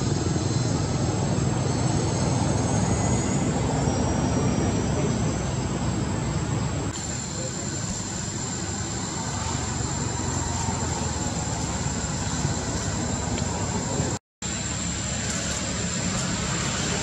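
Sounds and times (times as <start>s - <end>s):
high whine: 0.0s - 17.0s.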